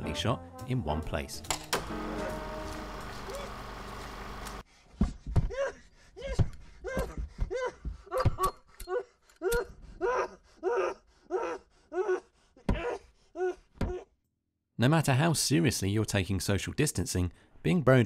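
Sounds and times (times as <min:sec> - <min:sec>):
man gasping and panting: 0:04.7 - 0:14.1.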